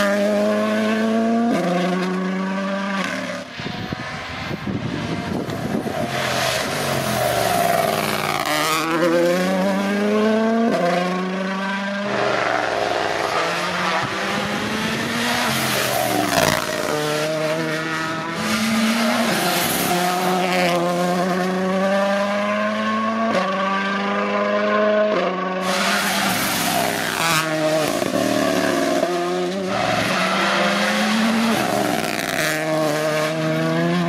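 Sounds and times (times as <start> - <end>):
rally car engine accelerating: 0.0 - 34.0.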